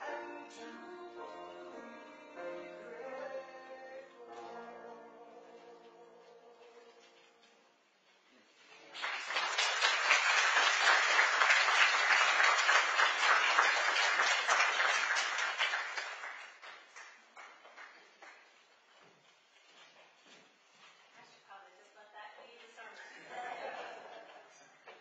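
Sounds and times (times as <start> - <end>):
congregation clapping: 8.9 - 18.6.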